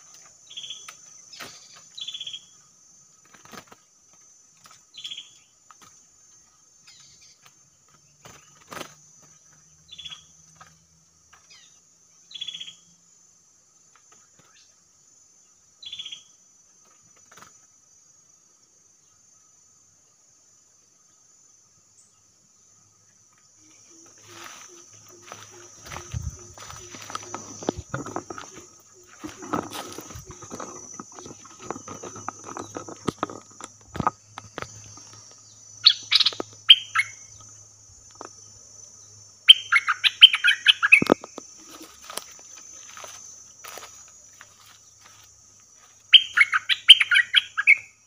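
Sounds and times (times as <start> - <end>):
steady high-pitched hiss: 0.0 - 48.0
high-pitched insect drone: 22.0 - 48.0
rustles: 23.3 - 38.5, 40.8 - 46.2
bulbul singing whistled phrases: 39.5 - 41.1, 46.2 - 47.9.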